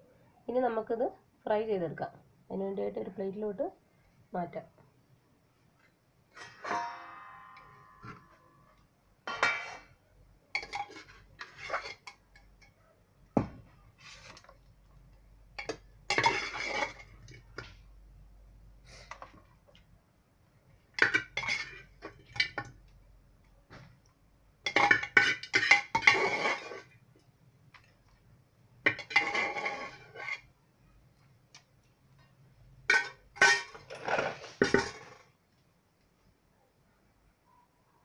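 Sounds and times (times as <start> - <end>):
metal spoon scraping a pot: 9.3 - 9.9, 10.6 - 12.7, 15.6 - 17.6, 21.0 - 22.6, 24.7 - 27.0, 28.9 - 30.5, 32.9 - 35.2.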